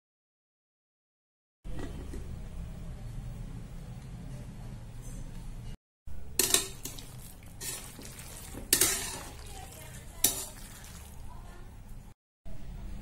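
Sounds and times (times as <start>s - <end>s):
metal spatula scraping pot: 6.4s - 11.2s.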